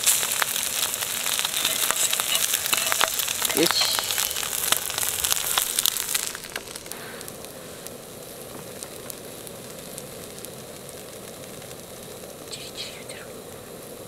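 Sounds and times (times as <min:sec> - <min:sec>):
egg sizzling and crackling: 0:00.0 - 0:14.0
gas burner hiss: 0:00.0 - 0:14.0.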